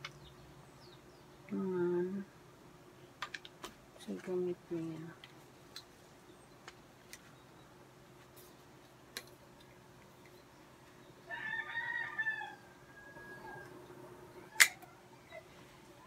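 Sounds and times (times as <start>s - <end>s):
rooster crowing: 11.2s - 15.2s.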